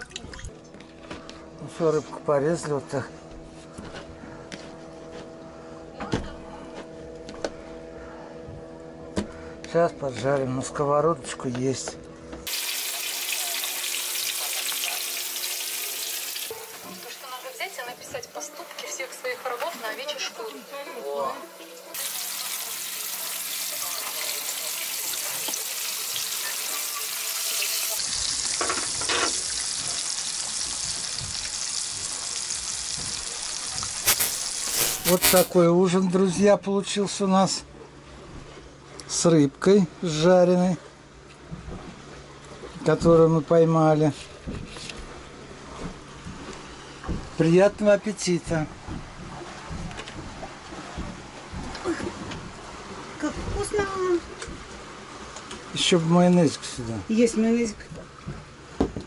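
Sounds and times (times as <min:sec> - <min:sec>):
low hum of even tones: 0:00.0 - 0:12.4
fish frying in oil: 0:12.5 - 0:18.0, 0:21.9 - 0:35.5.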